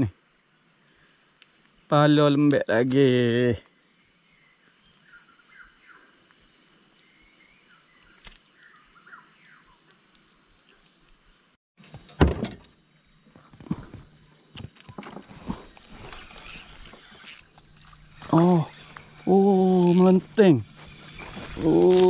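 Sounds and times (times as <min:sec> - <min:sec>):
faint bird chirps: 0:04.0 - 0:06.3, 0:07.0 - 0:11.6.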